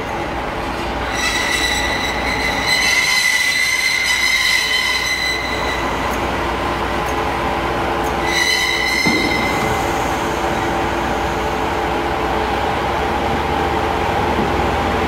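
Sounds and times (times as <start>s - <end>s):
high-pitched wheel squeal: 0.0s - 12.0s
low diesel engine drone: 9.0s - 15.0s.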